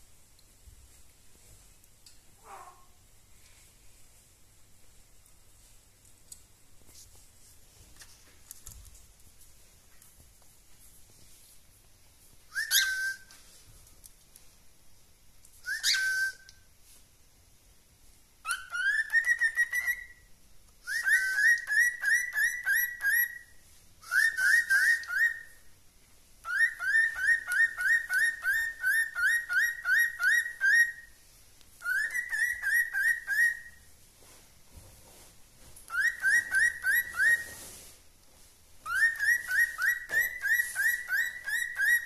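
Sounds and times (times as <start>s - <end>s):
cockatiel whistling: 12.5s - 13.4s, 15.6s - 16.6s, 18.4s - 20.3s, 20.9s - 25.6s, 26.4s - 31.2s, 31.8s - 33.8s, 35.9s - 37.7s, 38.8s - 42.0s.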